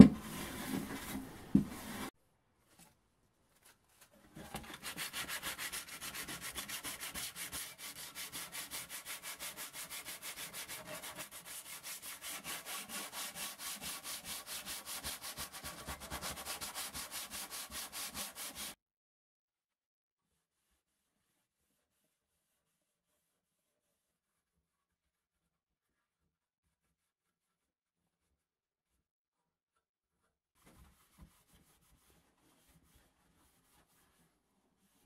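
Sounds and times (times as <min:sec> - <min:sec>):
sandpaper sanding strokes: 0:04.8 - 0:18.8.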